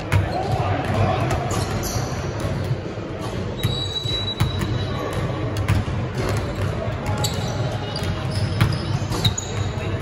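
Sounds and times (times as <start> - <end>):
basketball bouncing on court: 0.0 - 10.0
murmur of voices: 0.0 - 10.0
high shoe squeak: 1.5 - 2.4, 3.5 - 5.1, 7.1 - 10.0.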